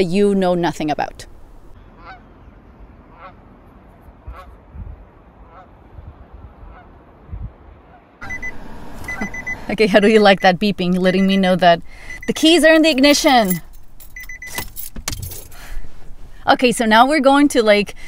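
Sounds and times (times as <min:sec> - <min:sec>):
goose honking: 0:01.9 - 0:02.3, 0:03.1 - 0:03.4, 0:04.2 - 0:04.6, 0:05.4 - 0:05.8, 0:06.6 - 0:07.0
wind rumble on microphone: 0:04.2 - 0:08.0
car ignition warning chime beeping: 0:08.2 - 0:14.7.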